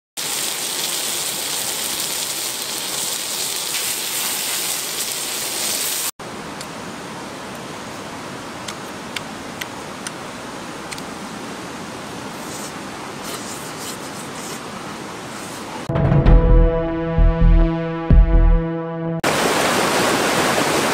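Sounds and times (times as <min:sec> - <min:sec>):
food sizzling on hot stone: 0:00.2 - 0:06.1.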